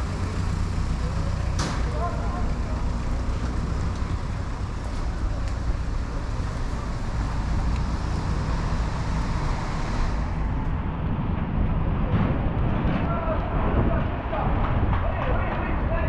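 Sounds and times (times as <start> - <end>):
steady low traffic rumble: 0.0 - 16.0
car tyres hissing on wet road: 2.6 - 10.4.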